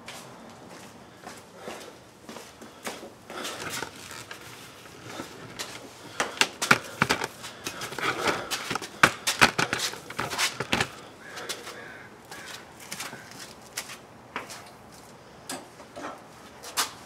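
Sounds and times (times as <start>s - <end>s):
knocks and clatter of shop gear: 3.3s - 11.1s.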